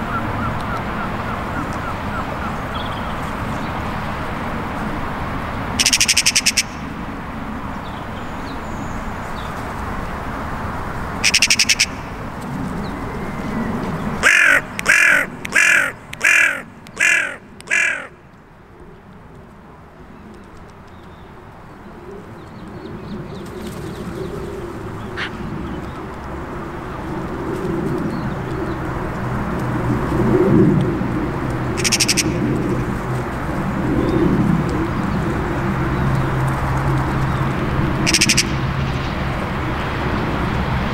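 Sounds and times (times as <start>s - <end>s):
crow cawing: 5.8s - 6.8s, 11.2s - 12.2s, 14.2s - 18.2s, 31.8s - 32.8s, 38.1s - 38.6s.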